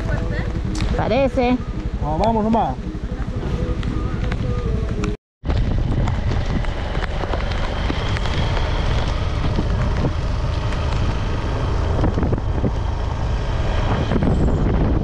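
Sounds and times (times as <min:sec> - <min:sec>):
wind rushing over microphone: 0:03.6 - 0:15.0.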